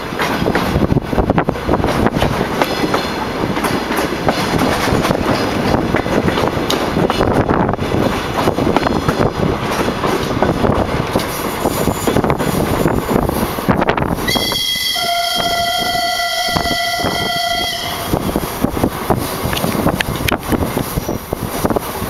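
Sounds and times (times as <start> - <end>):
train rumble and clatter: 0.0 - 22.0
train horn blast: 14.2 - 18.3.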